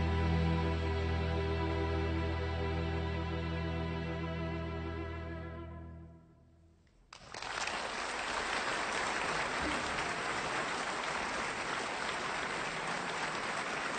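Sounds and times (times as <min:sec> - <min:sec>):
audience applause: 0:07.1 - 0:13.9.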